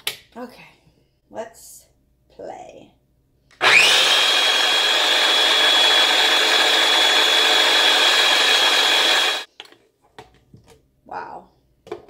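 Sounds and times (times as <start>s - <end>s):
food processor motor whining: 3.6s - 9.5s.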